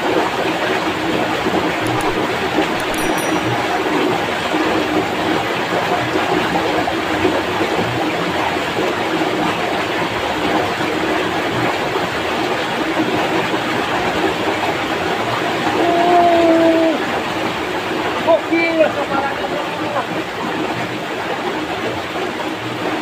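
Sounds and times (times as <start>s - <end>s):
short steady tone: 2.8s - 4.2s.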